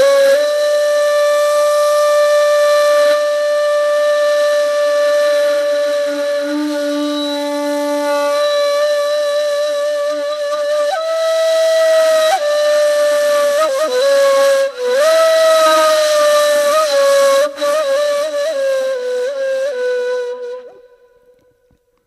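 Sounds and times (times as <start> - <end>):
breathy flute-like melody: 0.0 - 22.0.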